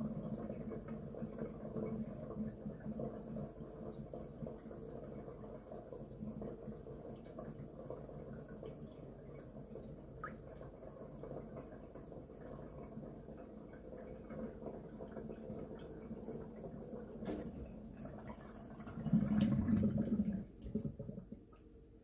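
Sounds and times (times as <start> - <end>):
water gurgling down drain: 0.0 - 21.6
water drips: 0.2 - 19.5.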